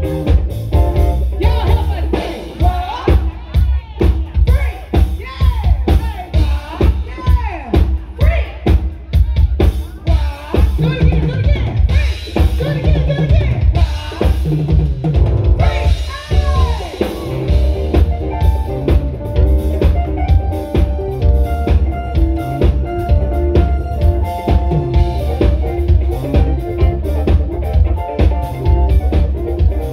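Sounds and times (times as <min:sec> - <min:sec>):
live band playing: 0:00.0 - 0:29.9.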